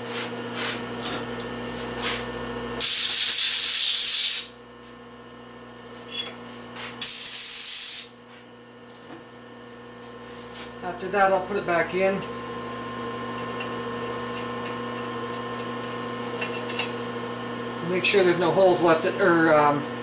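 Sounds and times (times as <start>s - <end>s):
loud compressed air blasts: 2.8s - 4.6s, 7.0s - 8.2s.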